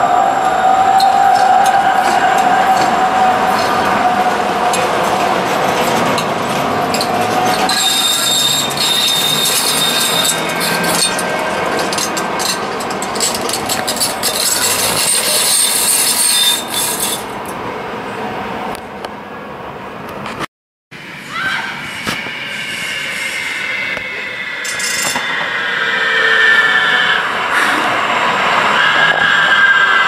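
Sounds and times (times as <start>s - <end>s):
train wheels squealing on rails: 0.0s - 17.5s, 21.0s - 30.0s
train running rumble: 0.0s - 18.1s.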